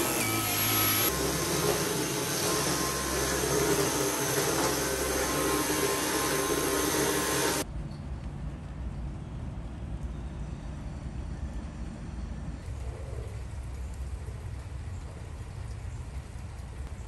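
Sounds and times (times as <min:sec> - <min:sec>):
electric fan whirring: 0:00.0 - 0:07.7.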